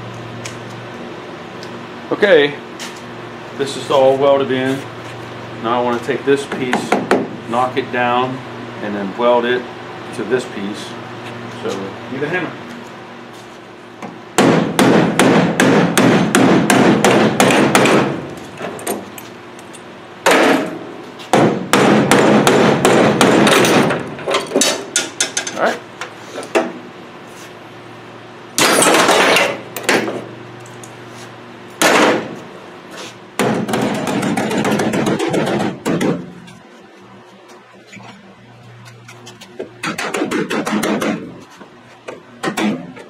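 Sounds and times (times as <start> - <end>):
hammer striking sheet steel: 39.8 - 41.3.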